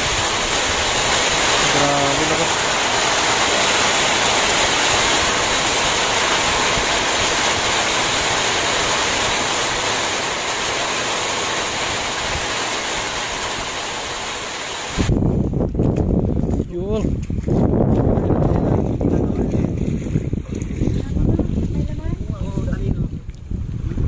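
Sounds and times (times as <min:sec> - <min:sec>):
heavy rain: 0:00.0 - 0:15.2.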